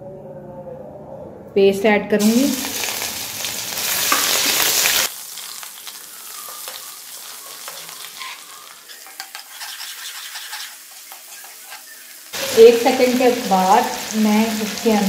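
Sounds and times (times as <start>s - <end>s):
paste sizzling in hot oil: 2.2s - 15.0s
metal ladle scraping a pan: 6.5s - 12.5s.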